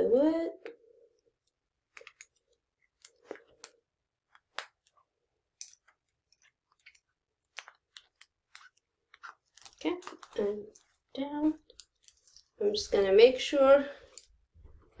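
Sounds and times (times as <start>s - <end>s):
plastic clicks and crinkles: 1.4s - 12.6s.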